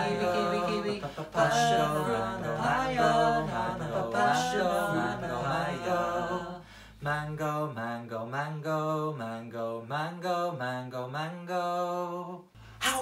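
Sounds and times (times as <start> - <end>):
a cappella male voices chanting: 0.0 - 12.5.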